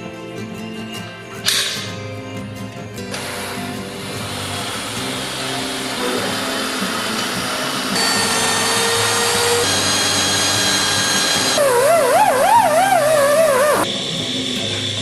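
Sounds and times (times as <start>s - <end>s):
cordless drill: 3.1s - 13.9s
die grinder whine: 3.1s - 15.0s.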